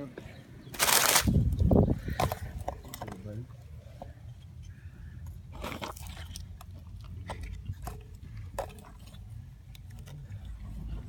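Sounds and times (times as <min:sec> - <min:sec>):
camera scraping against dry soil: 0:00.7 - 0:01.6.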